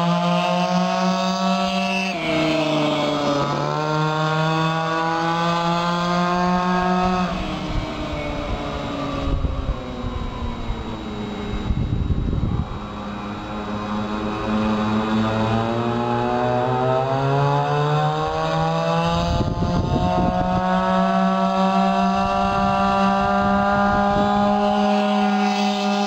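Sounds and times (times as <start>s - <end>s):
scooter engine passing: 0.0s - 26.0s
low rumbling noise: 6.5s - 16.1s, 19.2s - 20.6s.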